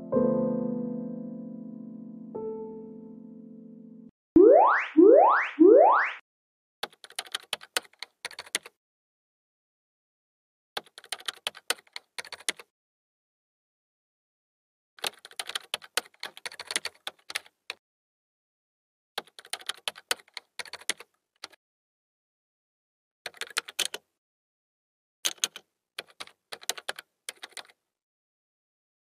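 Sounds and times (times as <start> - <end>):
rapid keyboard key clicks: 6.8 - 8.7, 10.8 - 12.7, 15.0 - 17.6, 19.2 - 21.6, 23.3 - 24.0, 25.3 - 27.8.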